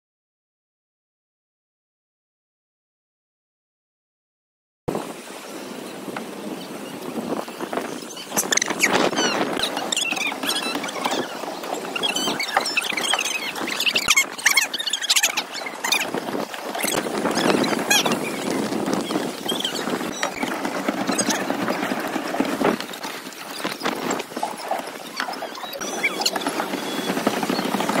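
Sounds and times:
paddle wheel churning water: 4.9s - 28.0s
pedal squeaks: 7.9s - 28.0s.

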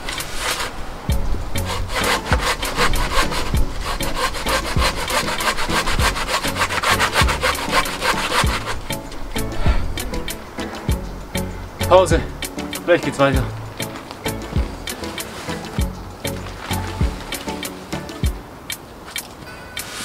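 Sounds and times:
hand saw cutting log: 0.0s - 0.8s, 1.6s - 9.0s.

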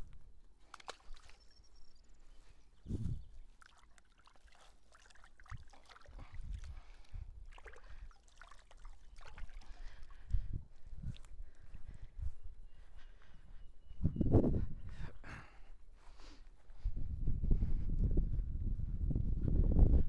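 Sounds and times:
water splashing and trickling: 0.6s - 1.8s, 3.2s - 11.6s.

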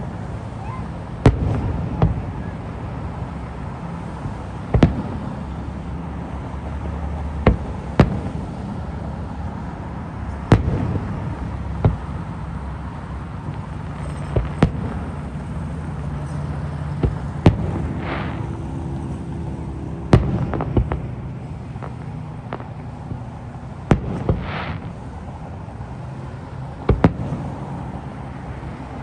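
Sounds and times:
distant firework shells bursting: 1.1s - 28.1s.

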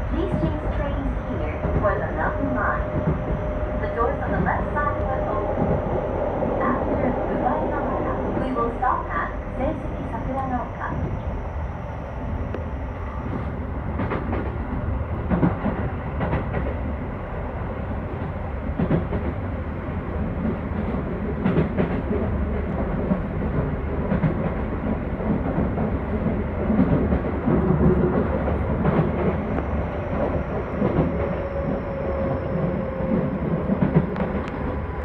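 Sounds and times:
wheels rumbling on rail: 0.0s - 35.0s.

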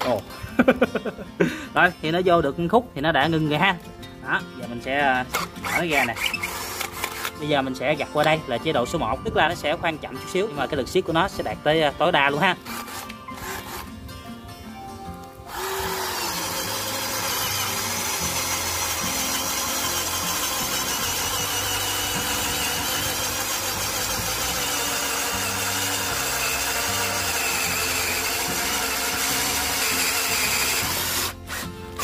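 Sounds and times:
cordless drill motor running: 5.3s - 7.4s, 12.6s - 13.9s, 15.4s - 32.0s
drill bit cutting wood: 5.3s - 7.5s, 12.6s - 13.9s, 15.5s - 32.0s.

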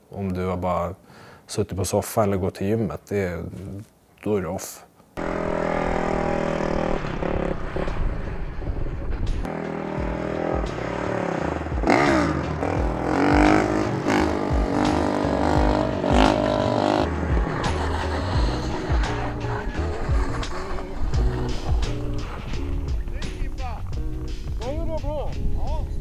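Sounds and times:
motorcycle engine revving: 5.2s - 24.5s.

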